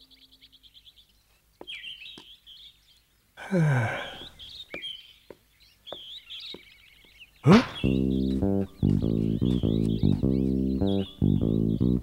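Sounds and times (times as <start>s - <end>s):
birds chirping: 0.0s - 12.0s
deep voiced sigh: 3.4s - 4.4s, 7.4s - 7.9s.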